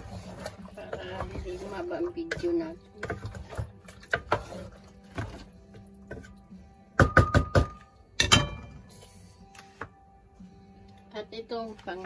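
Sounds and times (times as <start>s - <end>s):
wooden spoon knocking on metal pot: 6.9s - 8.8s.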